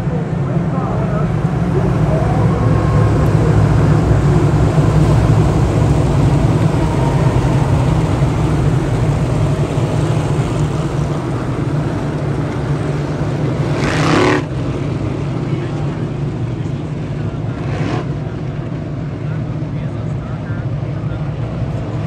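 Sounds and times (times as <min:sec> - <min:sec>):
race car engines droning: 0:00.0 - 0:22.0
engine revving higher: 0:13.3 - 0:14.7.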